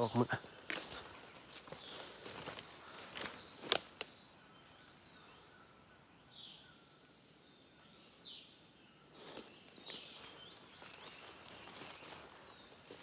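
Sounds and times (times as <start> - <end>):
birds chirping: 0.0 - 13.0
twigs snapping: 0.6 - 4.2.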